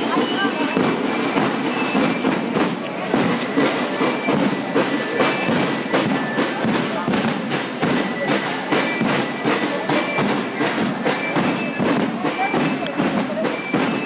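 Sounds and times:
bell-like mallet notes: 0.0s - 14.0s
crowd voices: 0.0s - 14.0s
marching drums: 0.0s - 14.0s.

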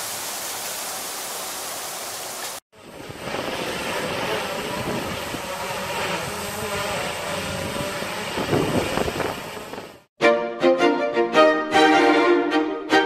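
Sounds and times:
drone propellers whining: 2.8s - 10.1s
wind rumbling on microphone: 2.8s - 10.1s.

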